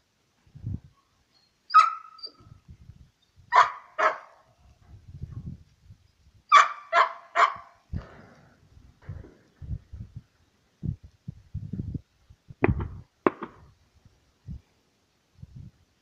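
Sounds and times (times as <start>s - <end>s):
dog barking: 1.8s - 2.2s, 3.5s - 4.5s, 6.5s - 7.8s.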